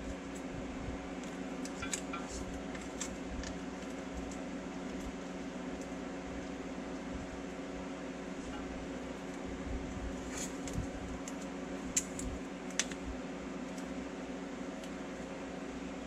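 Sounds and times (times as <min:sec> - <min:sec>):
steady machine hum: 0:00.0 - 0:16.0
tape tearing clicks and crackles: 0:01.2 - 0:05.9, 0:10.2 - 0:13.9.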